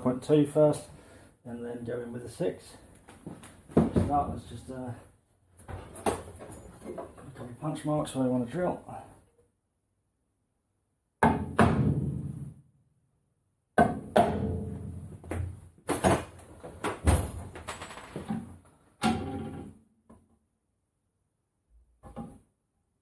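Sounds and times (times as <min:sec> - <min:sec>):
hammer striking metal punch: 0:13.8 - 0:14.8.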